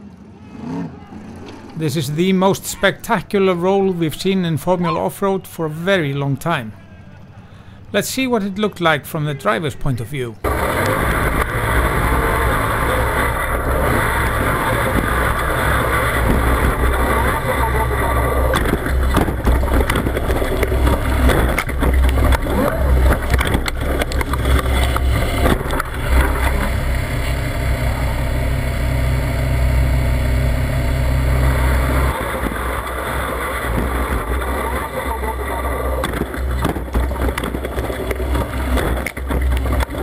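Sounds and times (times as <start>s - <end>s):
knocks and bangs of tumbling car: 10.4s - 29.0s, 31.2s - 40.0s
buggy engine running hard: 10.4s - 40.0s.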